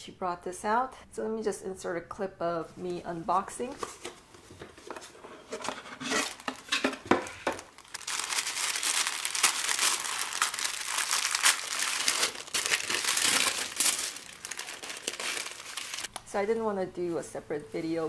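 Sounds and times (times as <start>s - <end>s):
tissue paper crinkling: 6.0s - 6.8s, 7.6s - 16.1s.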